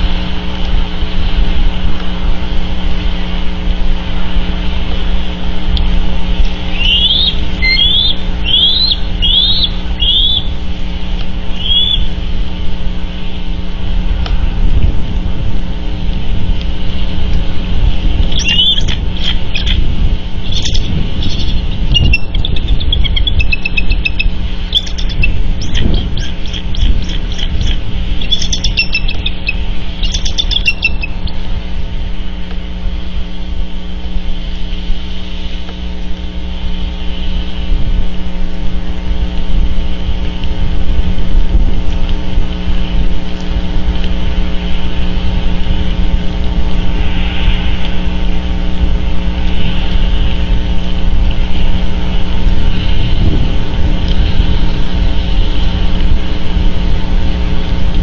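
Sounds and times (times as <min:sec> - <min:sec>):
faint hum: 0:00.0 - 0:58.0
low rumble: 0:00.0 - 0:58.0
bird chirping calls: 0:06.4 - 0:10.6, 0:11.5 - 0:12.1, 0:18.2 - 0:31.4.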